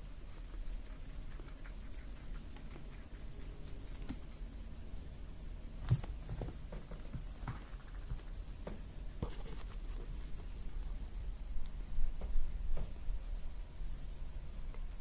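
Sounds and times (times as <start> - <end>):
paws tapping and scuffing: 5.9 - 10.5.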